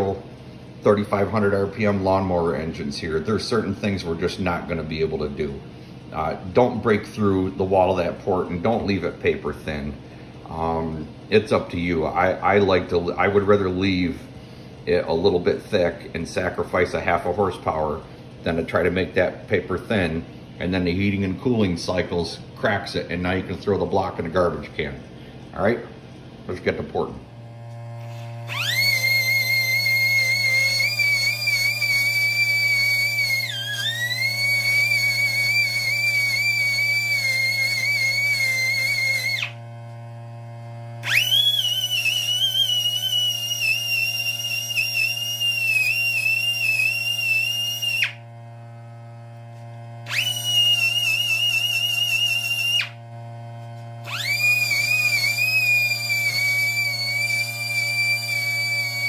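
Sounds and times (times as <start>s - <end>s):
low hum: 24.6s - 59.0s
die grinder whining: 27.3s - 59.0s.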